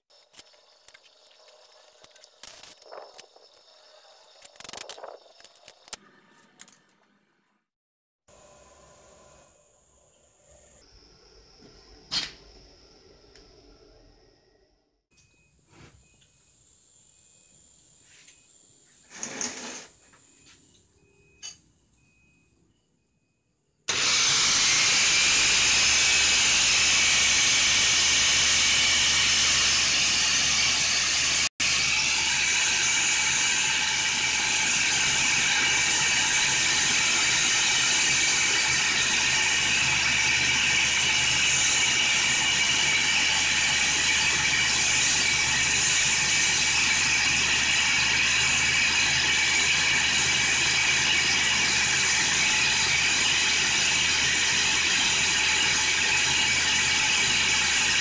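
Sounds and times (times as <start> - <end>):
grinder motor whine: 23.9 - 58.0
sanding belt hissing: 23.9 - 58.0.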